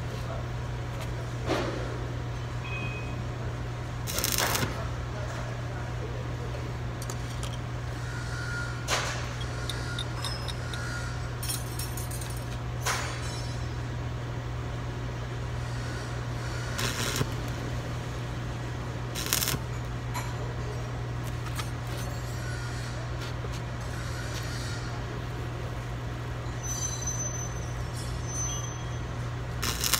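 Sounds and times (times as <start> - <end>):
steady low hum: 0.0 - 26.5, 29.0 - 29.9
crackling welding arc: 4.0 - 4.9, 16.4 - 17.6, 19.1 - 19.7, 29.5 - 29.9.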